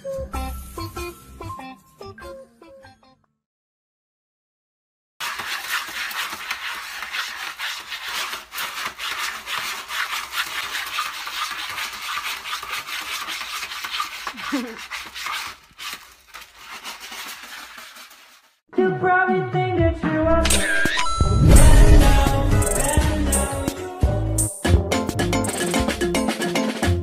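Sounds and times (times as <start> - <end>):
cat scratching in litter: 5.2 - 18.6.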